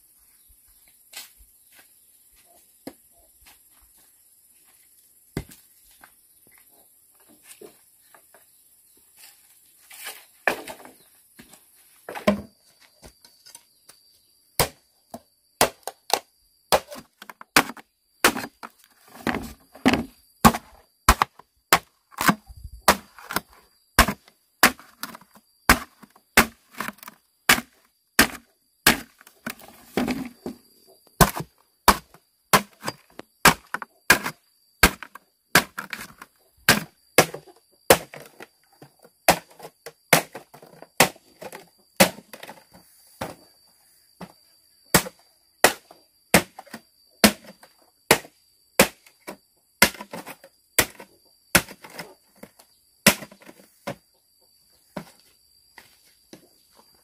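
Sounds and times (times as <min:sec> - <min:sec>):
machete chopping bamboo: 0:14.6 - 0:14.8, 0:15.6 - 0:30.3, 0:31.2 - 0:38.4, 0:39.3 - 0:42.6, 0:44.9 - 0:49.2, 0:49.8 - 0:52.0, 0:53.0 - 0:53.6.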